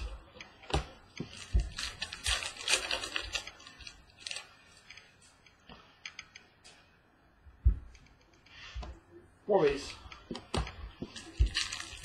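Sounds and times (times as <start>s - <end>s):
trading cards clicking and rustling: 0.7s - 5.1s, 9.7s - 12.0s.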